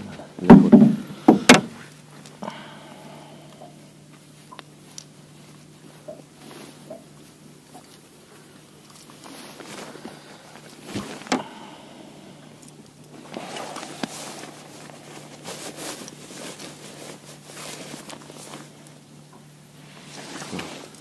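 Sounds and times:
steady low hum: 0.0 - 21.0
sharp knocks: 0.4 - 1.8
scraping and rustling: 4.0 - 11.4, 13.1 - 21.0.

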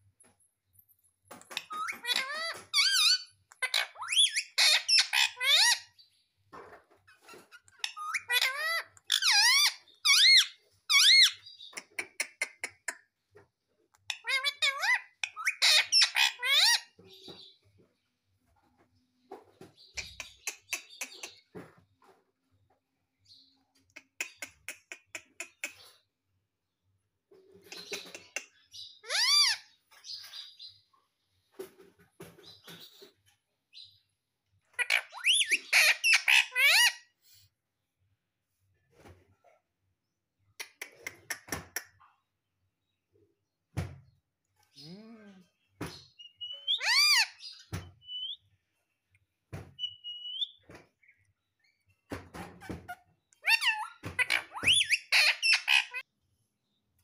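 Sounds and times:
parakeet calling: 1.5 - 5.9, 7.7 - 12.5, 14.1 - 17.0, 28.8 - 29.7, 34.7 - 37.1, 46.1 - 48.4, 49.8 - 50.6, 53.4 - 56.0.

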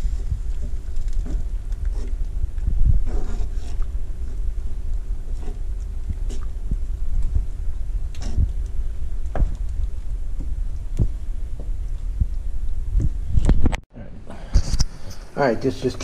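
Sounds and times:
wooden spoon stirring thick sauce: 0.0 - 12.4
low rumble: 0.0 - 13.8
faint hum: 0.0 - 16.0.

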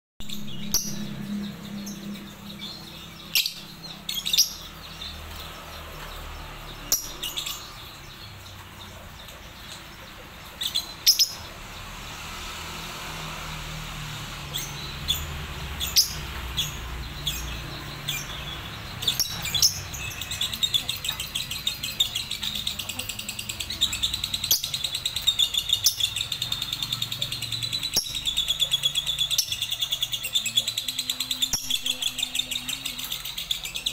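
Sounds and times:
lovebirds chirping shrilly: 0.2 - 13.8.

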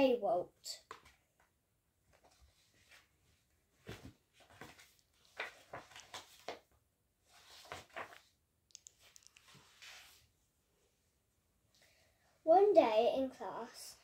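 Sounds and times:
paper pages rustling: 2.1 - 10.3.

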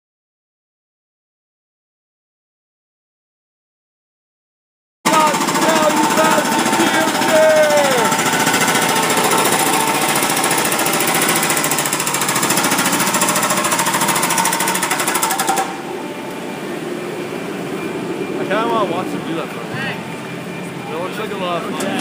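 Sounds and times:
rapid machine-like rattling: 5.1 - 22.0.

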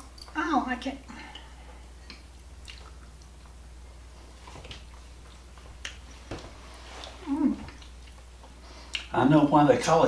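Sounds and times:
low steady hum: 0.0 - 10.0
person chewing: 1.2 - 6.2, 6.8 - 9.1.

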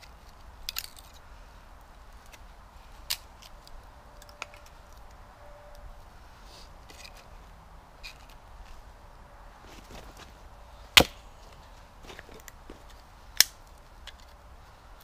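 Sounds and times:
axe splitting wood: 11.0 - 11.2.

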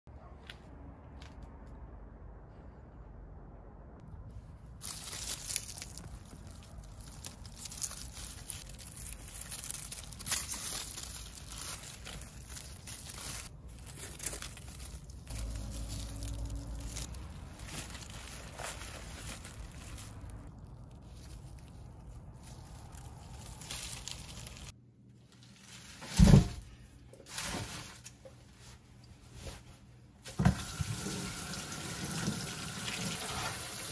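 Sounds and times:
dry leaves rustling: 4.4 - 26.4, 27.3 - 29.7
roots tearing out of soil: 4.8 - 24.8.

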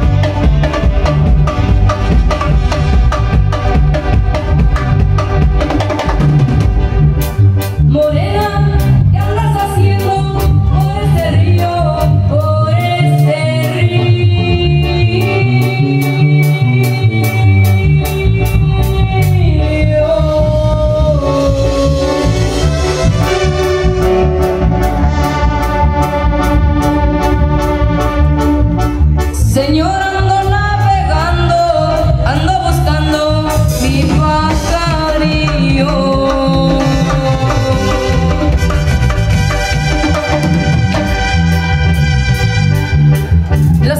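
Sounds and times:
steady drum beat: 0.0 - 7.7, 33.0 - 43.9
keyboard melody: 0.0 - 43.9
live band music: 0.0 - 43.9
person singing: 7.9 - 23.3, 29.4 - 38.8.

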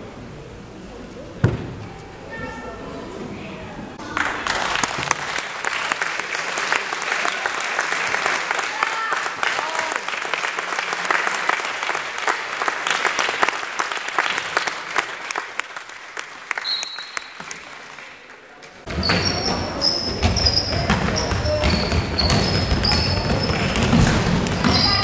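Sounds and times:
basketball bouncing on court: 1.4 - 1.8, 18.9 - 25.0
crowd applause: 4.0 - 18.8
sneaker squeaks: 18.9 - 25.0.

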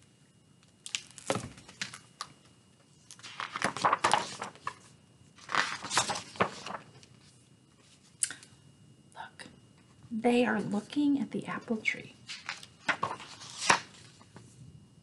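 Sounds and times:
book pages rustling: 3.1 - 8.1, 12.3 - 14.5.

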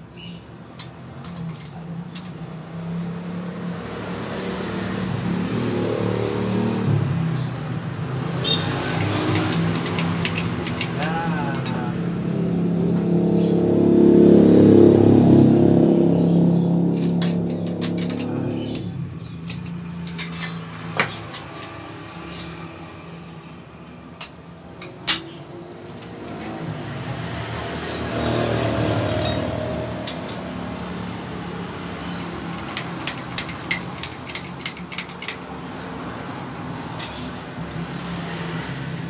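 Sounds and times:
steady engine-like hum: 0.0 - 39.0
metal knocks and clinks: 8.6 - 12.0, 17.0 - 22.7, 29.1 - 30.6, 32.4 - 35.7, 36.9 - 38.0.

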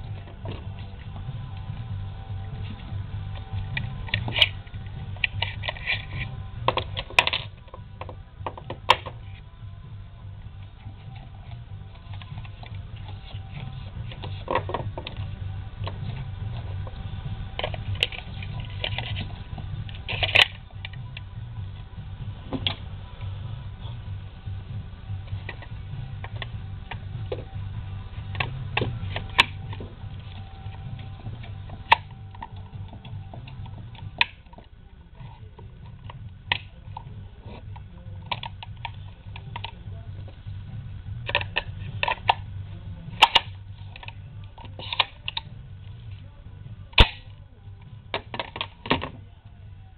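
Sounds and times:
faint rock music: 0.0 - 49.9
loud metallic snap: 47.0 - 47.3.

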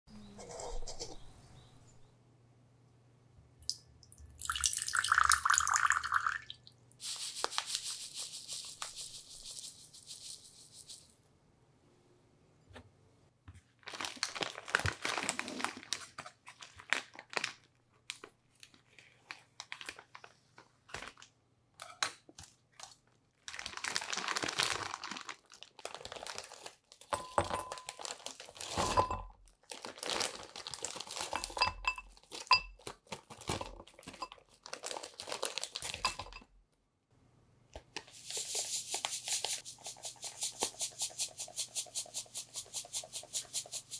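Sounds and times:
plastic bag crinkling: 13.8 - 20.3, 22.8 - 28.8, 29.5 - 36.4
frozen pieces clinking in glass bowl: 27.0 - 29.3, 30.8 - 33.0, 33.9 - 36.4.

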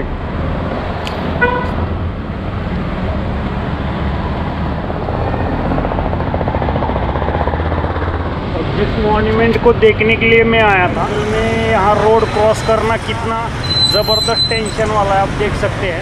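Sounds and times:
road traffic noise: 0.0 - 16.0
car horn toot: 1.4 - 1.8.

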